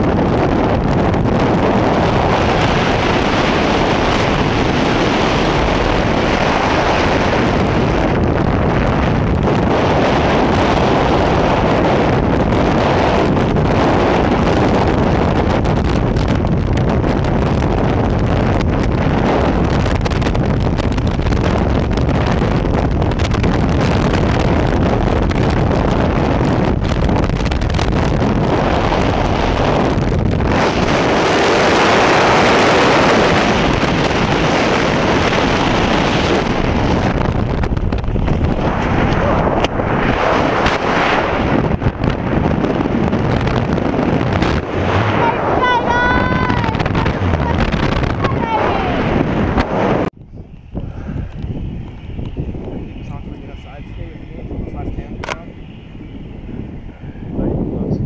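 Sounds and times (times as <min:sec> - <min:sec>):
freefall wind rushing: 0:00.0 - 0:58.0.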